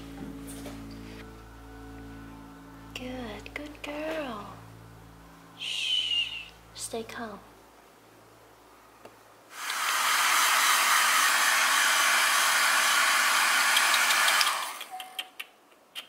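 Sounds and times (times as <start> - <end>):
hair dryer blowing: 9.5 - 14.9.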